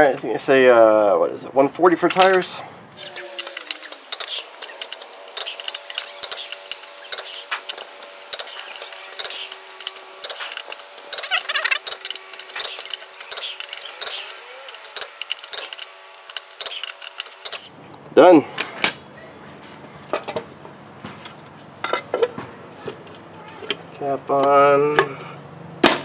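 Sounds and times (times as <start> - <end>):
torque wrench clicking: 3.0 - 17.7.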